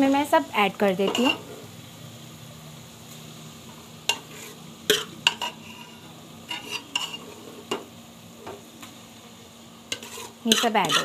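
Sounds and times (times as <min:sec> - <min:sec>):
metal spoon clinking on pots: 0:01.0 - 0:01.4, 0:09.9 - 0:11.0.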